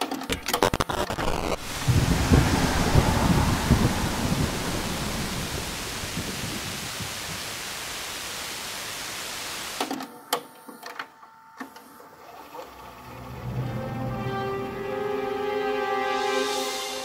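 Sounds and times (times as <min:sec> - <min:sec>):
videotape static: 0:00.0 - 0:02.0, 0:05.5 - 0:10.1
sharp clicks: 0:00.3 - 0:01.6
faint hum: 0:00.3 - 0:09.8
rain hiss: 0:00.5 - 0:09.9.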